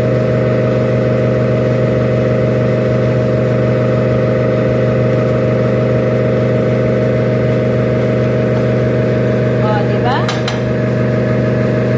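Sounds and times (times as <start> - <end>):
motor humming: 5.2 - 11.9.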